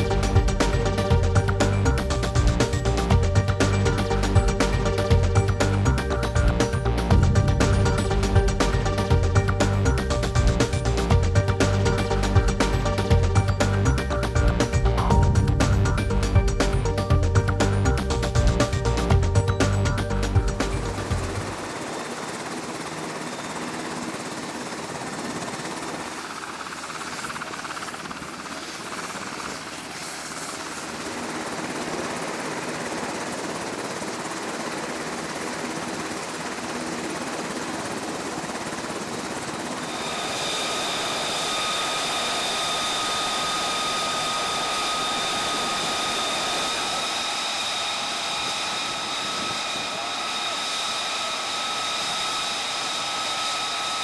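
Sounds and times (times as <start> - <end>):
jet aircraft rushing noise: 0.0 - 22.1, 39.5 - 54.0
high turbine whine: 0.0 - 54.0.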